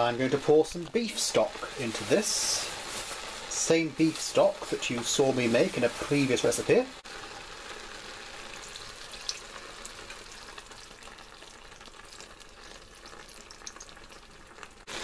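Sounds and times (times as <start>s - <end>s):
meat sizzling in a frying pan: 0.0s - 15.0s
liquid pouring: 4.4s - 15.0s.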